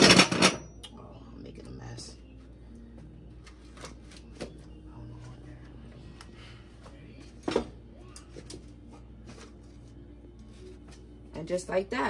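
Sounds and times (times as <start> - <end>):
metal grates knocking and clanking: 0.0 - 0.6.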